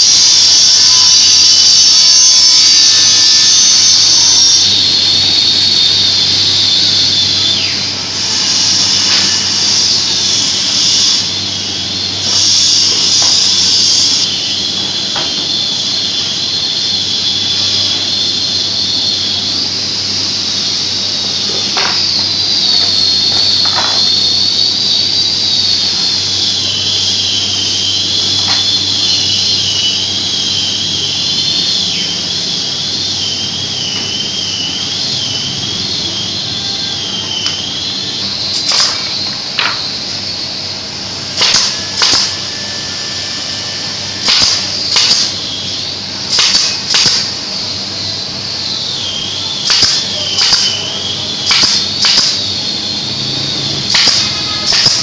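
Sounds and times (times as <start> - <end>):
pneumatic nailer firing: 0.0 - 11.3, 12.2 - 14.3, 21.4 - 24.6, 38.5 - 40.0, 41.2 - 42.5, 44.1 - 45.4, 46.2 - 47.5, 49.6 - 52.6, 53.7 - 55.0
compressed air hissing: 0.0 - 55.0.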